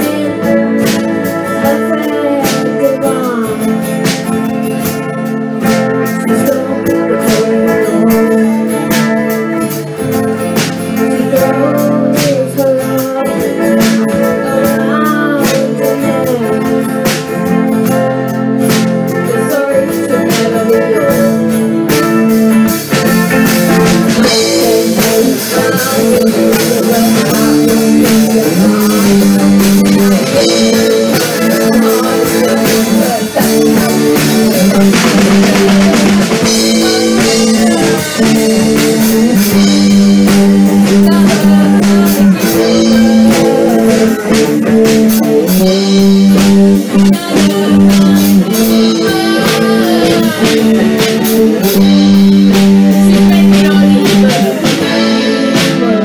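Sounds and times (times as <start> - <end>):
acoustic guitar: 0.0 - 56.0
drum kit beat: 0.0 - 56.0
electric guitar: 0.0 - 56.0.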